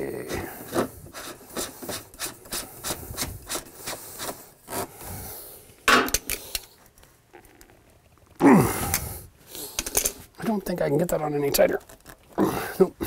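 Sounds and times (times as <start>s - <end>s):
plastic scrape: 0.3s - 4.9s.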